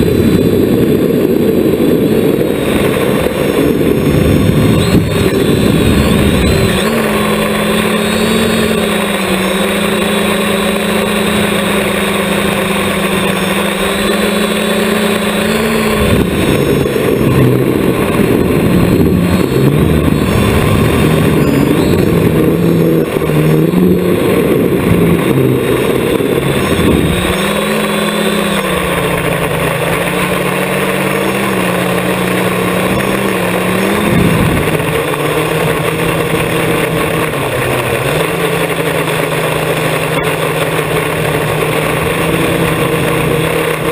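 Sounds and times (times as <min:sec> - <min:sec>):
drone motors buzzing: 0:00.0 - 0:43.9
wind noise: 0:00.0 - 0:43.9.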